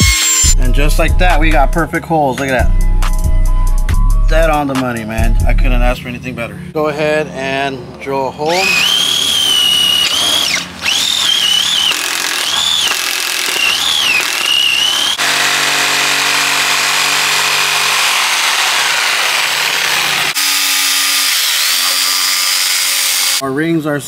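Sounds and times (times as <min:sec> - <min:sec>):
cordless drill boring wood: 0:08.5 - 0:23.4
jigsaw cutting board: 0:08.5 - 0:23.4.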